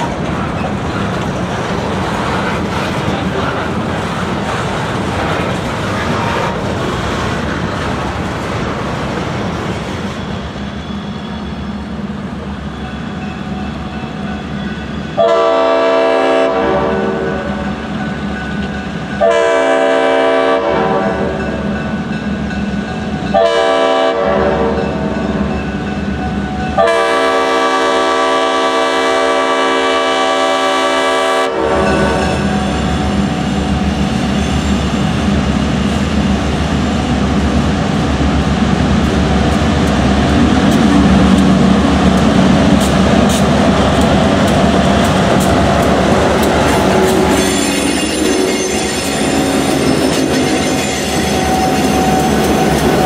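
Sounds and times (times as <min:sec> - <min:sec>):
locomotive air horn blasts: 0:15.2 - 0:17.5, 0:19.2 - 0:21.3, 0:23.4 - 0:24.8, 0:26.8 - 0:32.5.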